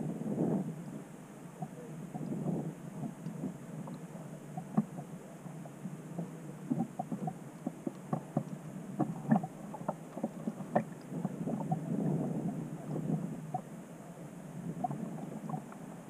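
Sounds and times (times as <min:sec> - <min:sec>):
water sloshing and gurgling: 0:00.0 - 0:16.0.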